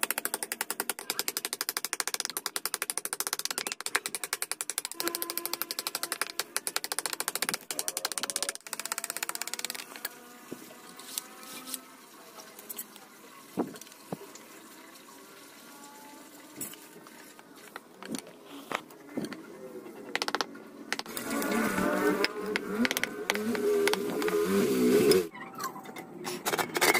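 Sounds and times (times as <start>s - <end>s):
knocks and clicks handling wood: 0.0s - 10.1s, 17.7s - 19.4s, 20.1s - 21.6s, 22.2s - 24.4s
electric mini grinder running: 21.0s - 25.3s.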